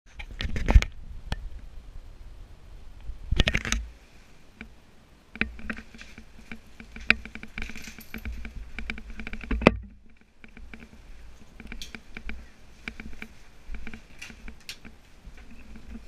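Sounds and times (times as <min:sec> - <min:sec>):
jacket rustling: 0:05.4 - 0:16.0.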